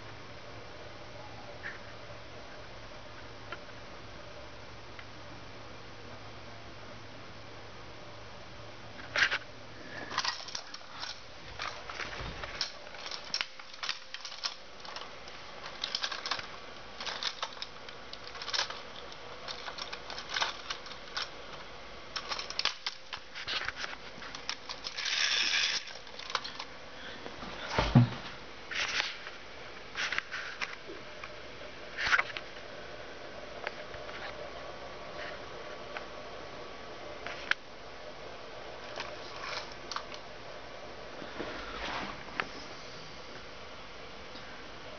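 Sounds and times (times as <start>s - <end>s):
faint low hum: 0.0s - 44.9s
plastic toy scraping: 22.2s - 26.6s.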